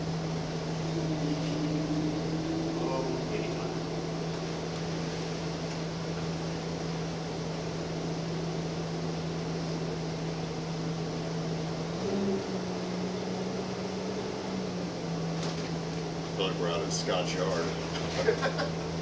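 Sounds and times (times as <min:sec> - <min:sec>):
bus engine running: 0:00.0 - 0:19.0.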